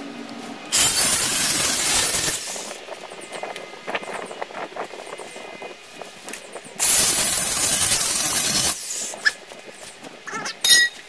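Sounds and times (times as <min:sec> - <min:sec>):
angle grinder cutting metal: 0:00.7 - 0:02.7, 0:06.8 - 0:09.2
sharp metallic clink: 0:10.6 - 0:11.0.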